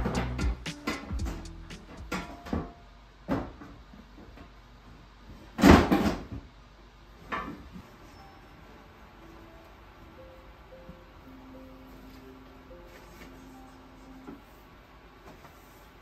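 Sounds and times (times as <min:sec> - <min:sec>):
kitchen knocks and clunks: 0:05.6 - 0:06.5.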